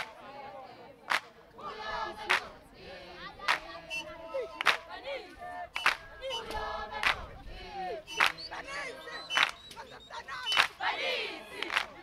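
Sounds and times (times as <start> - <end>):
voices calling and chanting: 0.0 - 12.0
group clapping in unison: 1.0 - 2.6, 3.3 - 7.4, 8.1 - 9.9, 10.5 - 12.0.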